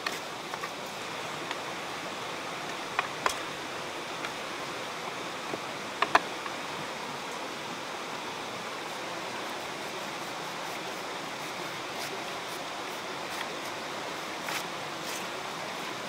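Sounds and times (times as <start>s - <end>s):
rushing outdoor background noise: 0.0s - 16.0s.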